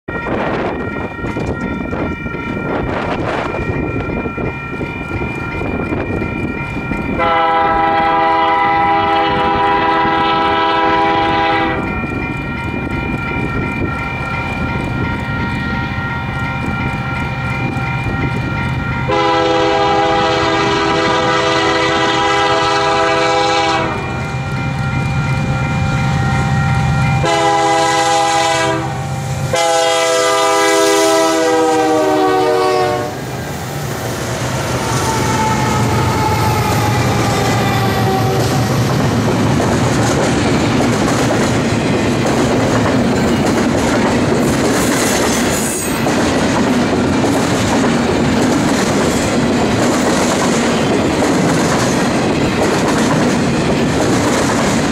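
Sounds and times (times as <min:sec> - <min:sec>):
diesel locomotives rumbling: 0:00.1 - 0:54.9
locomotive air horn blasts: 0:07.2 - 0:11.9, 0:19.1 - 0:24.2, 0:27.2 - 0:33.3, 0:34.8 - 0:38.7.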